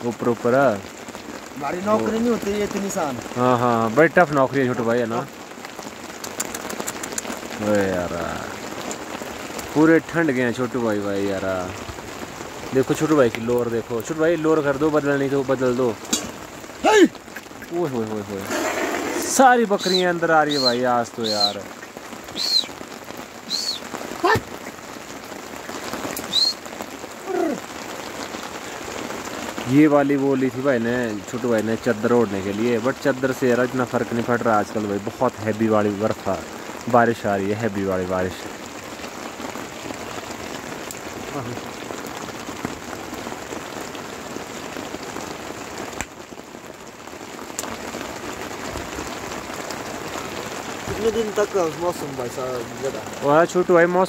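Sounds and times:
heavy rain on a tarpaulin tent: 0:00.0 - 0:54.0
sharp clicks: 0:06.2 - 0:07.4
falling call: 0:18.4 - 0:24.8, 0:26.2 - 0:27.7.

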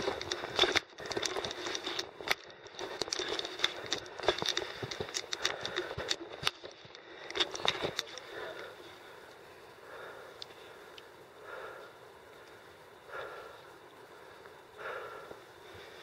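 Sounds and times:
footsteps crunching on ground: 0:00.0 - 0:08.4.

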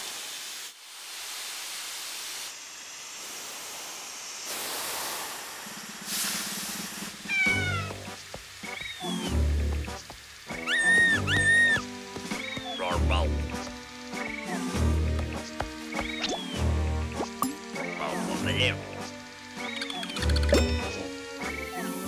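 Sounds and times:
steam hissing: 0:00.0 - 0:16.3
cartoon cat crying: 0:07.3 - 0:08.0, 0:10.6 - 0:11.8.

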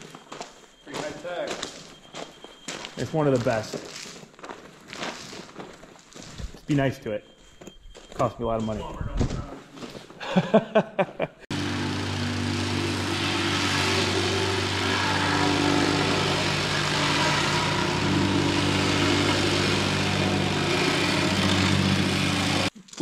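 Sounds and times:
engine running steadily: 0:11.5 - 0:22.7.

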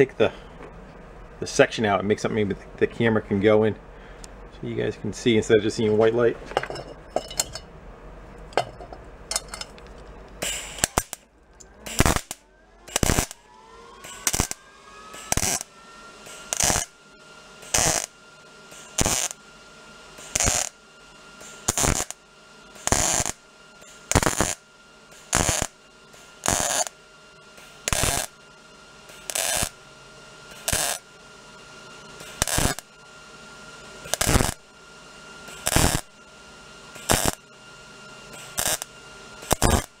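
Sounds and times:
welder arc crackling: 0:09.3 - 0:17.0, 0:17.6 - 0:19.4, 0:20.2 - 0:20.8, 0:21.4 - 0:29.8, 0:30.5 - 0:33.0, 0:34.0 - 0:34.7, 0:35.5 - 0:36.2, 0:36.9 - 0:37.5, 0:38.2 - 0:40.0.

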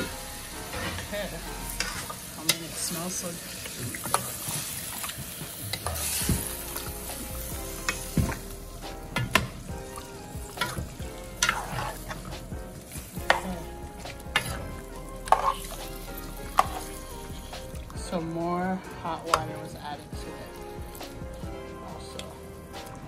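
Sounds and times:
chicken sizzling: 0:00.0 - 0:23.0
metal spoon scraping metal pot: 0:11.4 - 0:12.3, 0:13.2 - 0:17.3.

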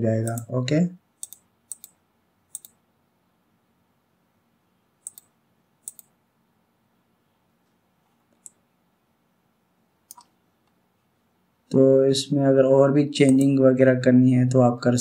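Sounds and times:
mouse buttons clicking: 0:00.2 - 0:00.5, 0:01.2 - 0:02.8, 0:05.0 - 0:06.1, 0:08.3 - 0:08.6, 0:10.1 - 0:10.4, 0:13.2 - 0:13.6.

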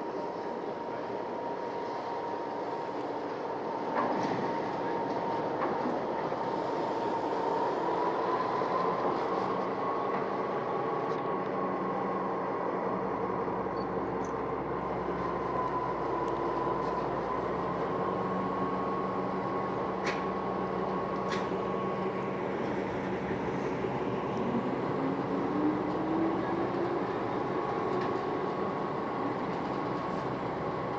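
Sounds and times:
diesel locomotive engine running: 0:00.0 - 0:30.9
engine whine: 0:00.0 - 0:30.9.

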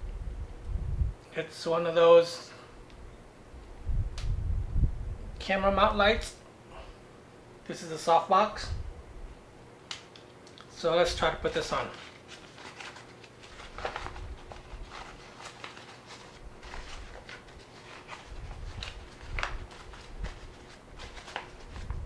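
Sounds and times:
fabric rustling: 0:11.8 - 0:22.0.

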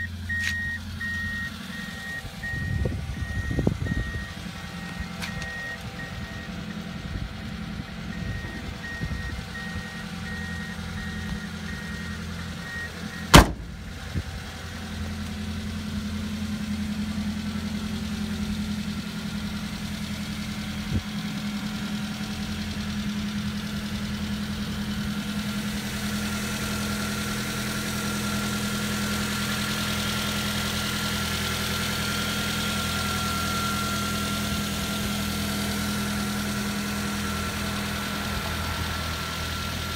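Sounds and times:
faint repeating beep: 0:00.0 - 0:06.5
car engine idling: 0:00.0 - 0:39.9.

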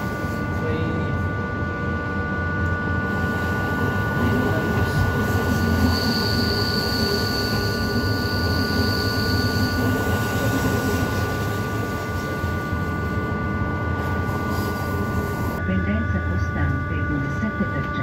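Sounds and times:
high steady whine: 0:00.0 - 0:18.0
train wheels rumbling on track: 0:03.0 - 0:15.6.

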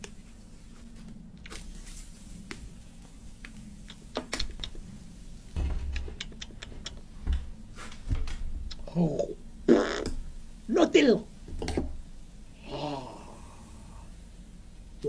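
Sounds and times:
low steady hum: 0:00.0 - 0:15.0
clicks and taps: 0:05.6 - 0:08.4
dull thumps: 0:05.6 - 0:08.7.

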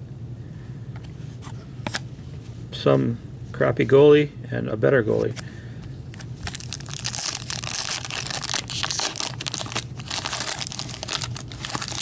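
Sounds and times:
wrapper crinkling and tearing: 0:06.4 - 0:12.0.

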